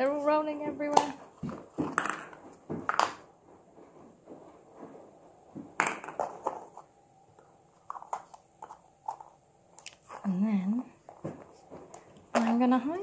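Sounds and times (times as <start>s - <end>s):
plastic eggs knocking on countertop: 0.8s - 3.3s, 5.6s - 6.8s.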